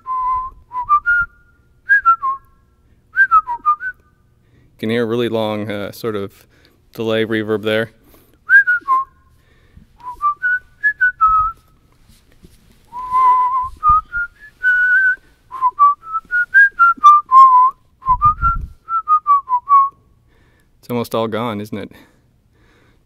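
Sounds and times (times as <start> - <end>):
man whistling a tune: 0.0 - 4.3, 8.5 - 9.3, 10.0 - 11.8, 12.9 - 20.0
low thumps: 12.9 - 18.8.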